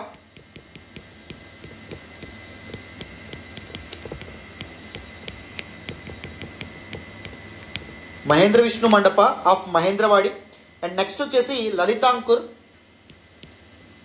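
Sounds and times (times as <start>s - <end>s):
faint steady hum: 0.0s - 14.0s
stylus ticking on tablet: 0.1s - 8.0s.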